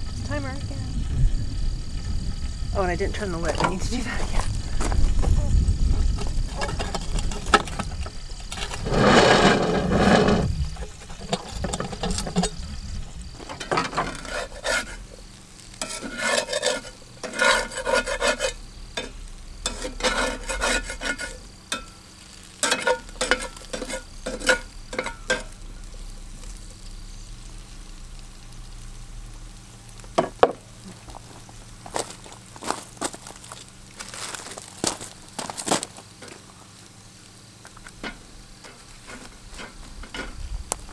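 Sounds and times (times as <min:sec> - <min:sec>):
food sizzling: 0:00.0 - 0:40.9
grinding scrape of iron lid: 0:06.2 - 0:26.6, 0:38.0 - 0:40.5
metal spatula scraping skillet: 0:06.5 - 0:12.6, 0:13.4 - 0:26.6, 0:38.0 - 0:40.5.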